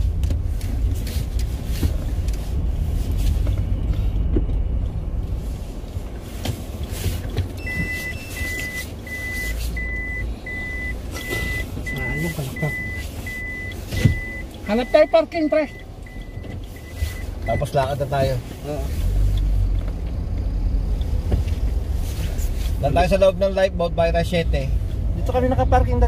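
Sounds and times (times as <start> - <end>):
car engine and road rumble: 0.0 - 26.0
high reversing sensor beeps: 7.6 - 17.8.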